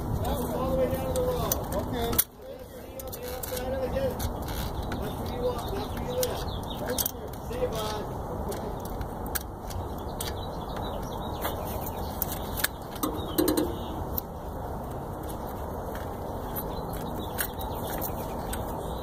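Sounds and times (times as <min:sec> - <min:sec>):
metal tool clicking on engine parts: 0:12.6 - 0:14.2.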